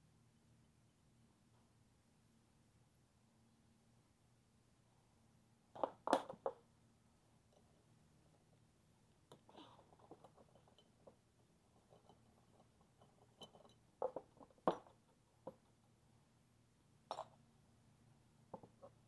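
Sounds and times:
faint steady hum: 0:00.0 - 0:19.0
small parts clicking and tapping: 0:05.8 - 0:06.7, 0:09.1 - 0:15.9, 0:17.0 - 0:17.4, 0:18.5 - 0:19.0.

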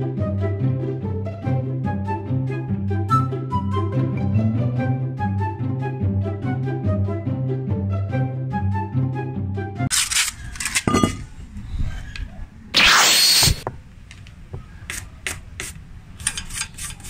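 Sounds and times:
background music: 0:00.0 - 0:09.9
short loud hiss: 0:12.8 - 0:13.6.

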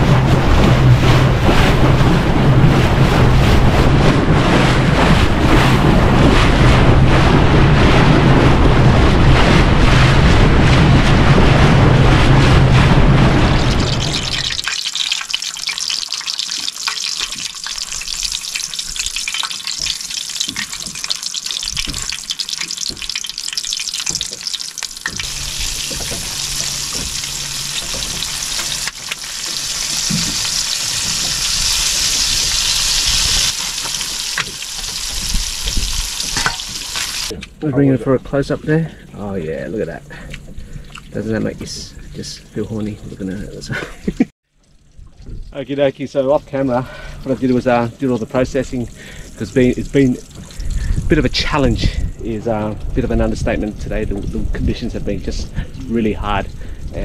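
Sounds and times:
boat engine humming: 0:00.0 - 0:14.7, 0:17.4 - 0:43.7, 0:44.5 - 0:57.0
water noise: 0:00.0 - 0:57.0
wind: 0:00.0 - 0:57.0
fish sizzling in frying pan: 0:13.6 - 0:37.3.

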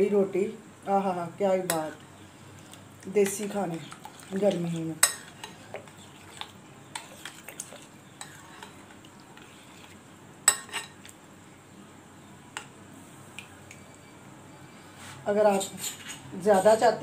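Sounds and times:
spoon stirring thick yogurt: 0:02.5 - 0:11.1.

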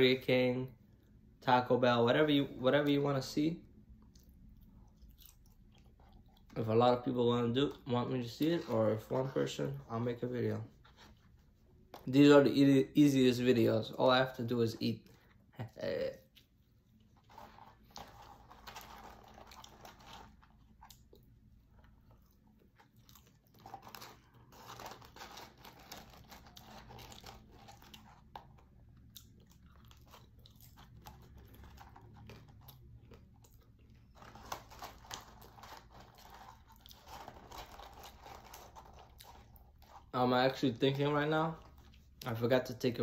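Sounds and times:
person chewing crunchy fries: 0:03.8 - 0:06.6, 0:15.0 - 0:40.2.

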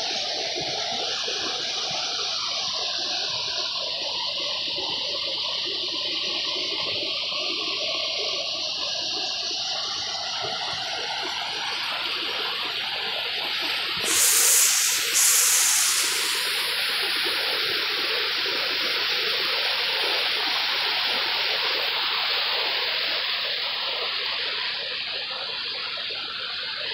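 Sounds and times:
hissing water surges: 0:12.1 - 0:26.9.

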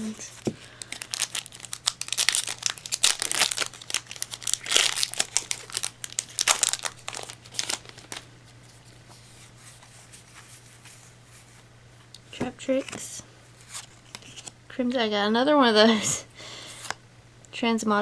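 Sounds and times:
foil wrapper crinkling: 0:00.7 - 0:08.8.

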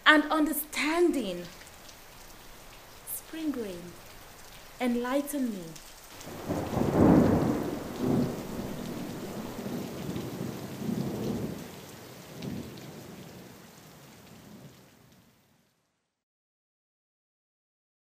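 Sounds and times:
rain falling: 0:00.0 - 0:16.0
thunder cracks and rumbles: 0:06.2 - 0:11.6.

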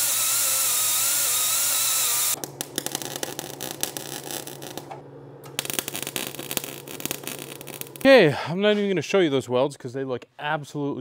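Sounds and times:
angle grinder whining: 0:00.0 - 0:08.0
welder humming: 0:00.0 - 0:08.1
welding arc crackling: 0:00.0 - 0:08.1.

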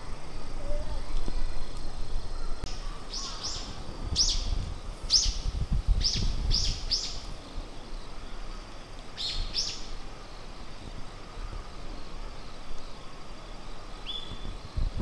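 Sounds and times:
small bird chirping: 0:00.5 - 0:08.3, 0:09.2 - 0:10.6.

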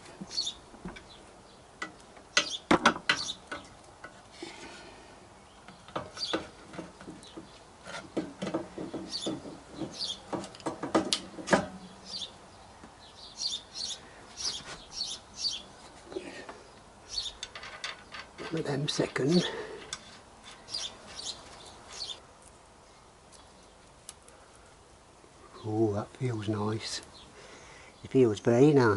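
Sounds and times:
birds chirping: 0:00.0 - 0:03.9, 0:05.2 - 0:28.9
metal parts clicking and knocking: 0:17.4 - 0:18.7.

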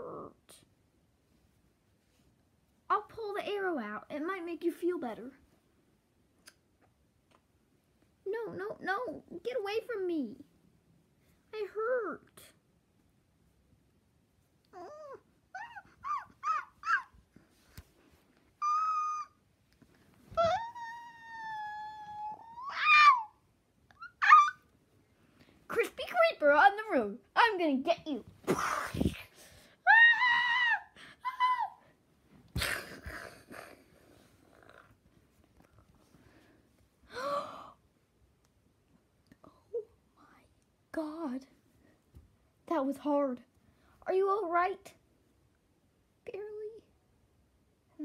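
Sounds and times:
dog whimpering and whining: 0:14.7 - 0:17.2, 0:18.5 - 0:19.4, 0:20.3 - 0:24.6.

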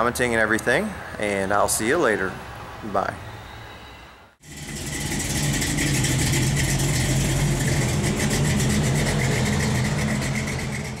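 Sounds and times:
engine idling: 0:04.4 - 0:11.0.

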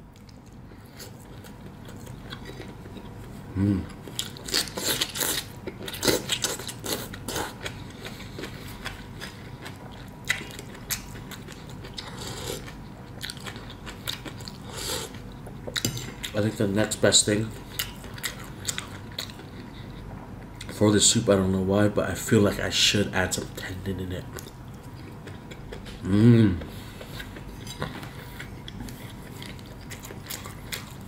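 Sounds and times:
man chewing food: 0:00.0 - 0:20.8, 0:23.5 - 0:31.0
man humming: 0:03.5 - 0:04.0, 0:26.0 - 0:26.7.

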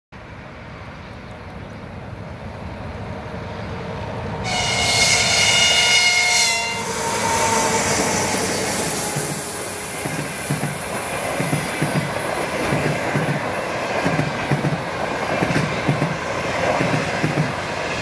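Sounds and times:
train rumbling: 0:00.2 - 0:18.0
passing train cars rumbling: 0:00.3 - 0:18.0
locomotive horn blast: 0:04.4 - 0:10.0.

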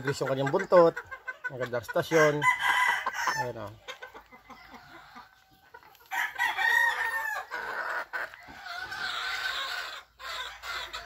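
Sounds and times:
chickens calling: 0:00.0 - 0:11.0
rooster crowing: 0:02.2 - 0:03.4, 0:06.1 - 0:07.5.

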